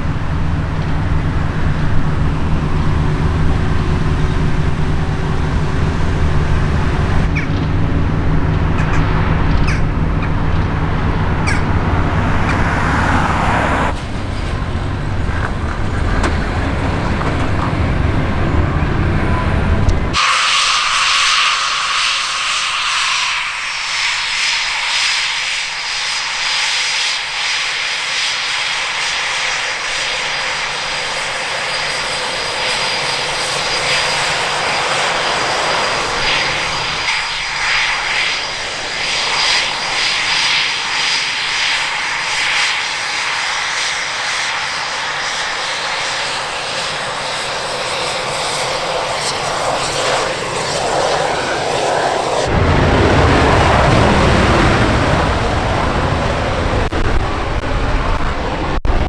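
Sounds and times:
jet engines whining: 0.0 - 59.0
low rumble with hum: 0.0 - 59.0
rushing hiss: 20.2 - 52.5.

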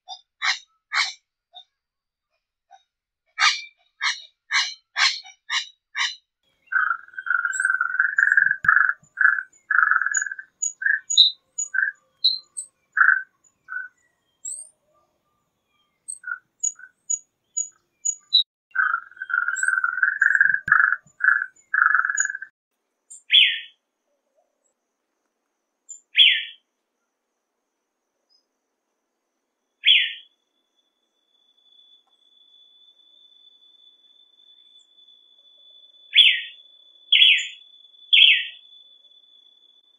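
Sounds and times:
faint high bird chirps: 0.0 - 1.8, 2.4 - 24.8, 25.9 - 27.1, 29.5 - 39.9
bird calls: 0.1 - 1.2, 3.4 - 14.7, 15.8 - 22.5, 23.2 - 23.7, 25.9 - 26.6, 29.8 - 30.3, 36.1 - 38.6
short high bird calls: 3.4 - 14.6, 17.6 - 22.5
bird singing low rapid trills: 5.5 - 22.5.

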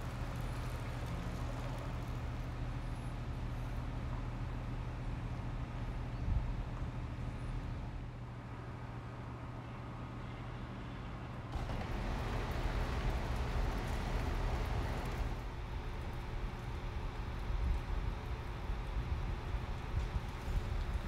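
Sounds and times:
noisy rush: 11.5 - 16.7
vehicle engine drone: 11.5 - 17.4.

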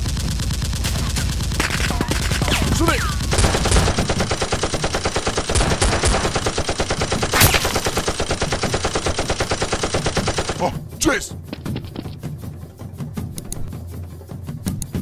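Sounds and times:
machine-gun fire: 0.0 - 10.8.

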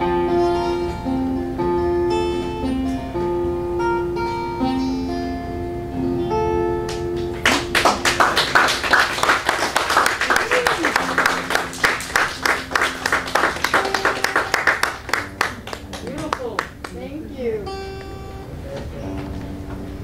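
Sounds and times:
acoustic guitar playing: 0.0 - 20.0
audience applauding: 7.4 - 17.0.

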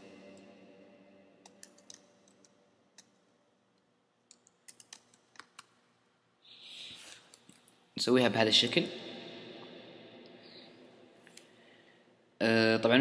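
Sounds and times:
computer keyboard key clicks: 4.3 - 5.7.

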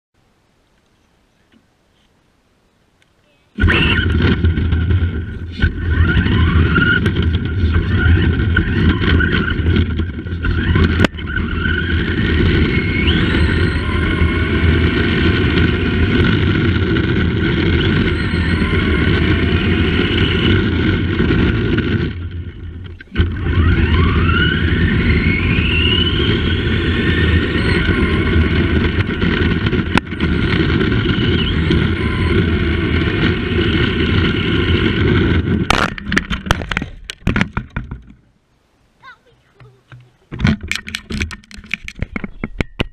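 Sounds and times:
electric motor whining: 3.5 - 37.2
tyres rumbling on road: 3.6 - 38.4.

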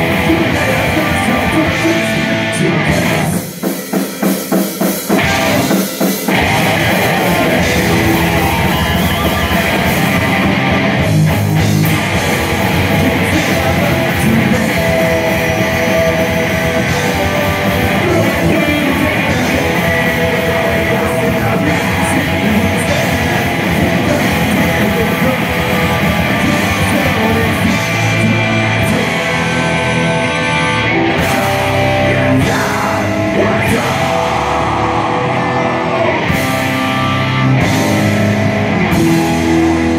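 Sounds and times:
person singing into microphone: 0.0 - 3.4, 13.0 - 29.7, 31.0 - 36.4
bass guitar: 0.0 - 3.9, 4.9 - 39.9
distorted electric guitars: 0.0 - 39.9
drum kit: 0.0 - 39.9.

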